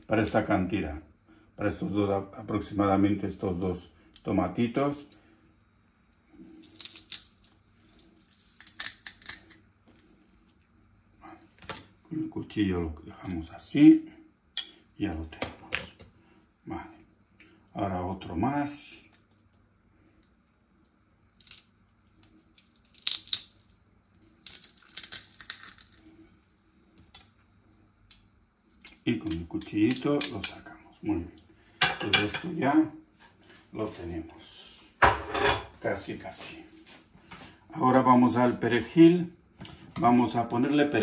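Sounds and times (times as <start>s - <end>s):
garlic skin crackling and tearing: 6.5s - 10.0s, 21.3s - 26.2s.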